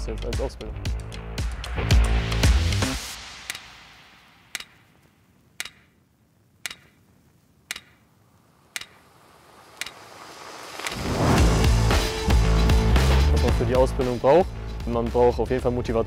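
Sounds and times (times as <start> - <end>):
background music: 0.0 - 4.8, 9.9 - 16.0
clock-like ticking: 2.0 - 3.8, 4.5 - 4.8, 5.6 - 6.0, 6.6 - 7.0, 7.7 - 8.0, 8.7 - 9.0, 9.8 - 10.0.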